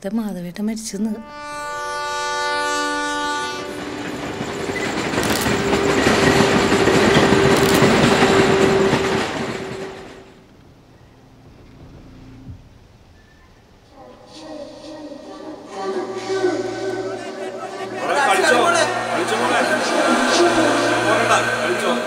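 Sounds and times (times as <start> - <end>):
train horn: 1.2 - 10.4, 14.3 - 22.0
train passing: 1.8 - 13.1, 13.9 - 22.0.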